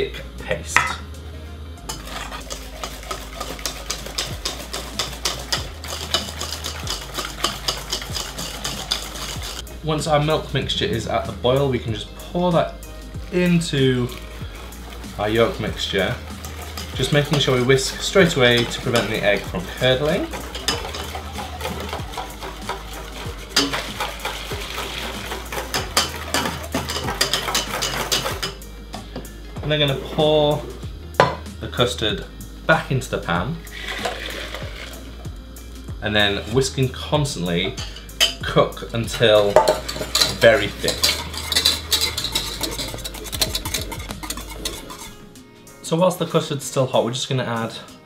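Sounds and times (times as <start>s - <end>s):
whisk clicking against metal bowl: 1.9s - 9.6s, 13.4s - 28.6s, 39.1s - 45.2s.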